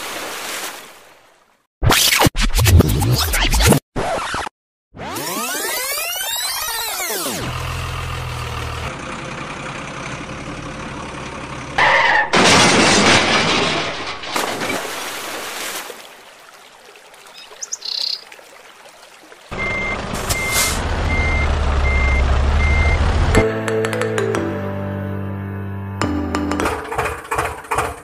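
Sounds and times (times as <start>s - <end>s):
crash and splash into water: 0.0s - 1.5s, 12.0s - 17.6s
truck engine running: 7.4s - 11.8s, 19.5s - 23.4s, 26.4s - 28.0s
birds chirping: 17.2s - 18.4s
reversing beeper beeping: 19.6s - 23.1s.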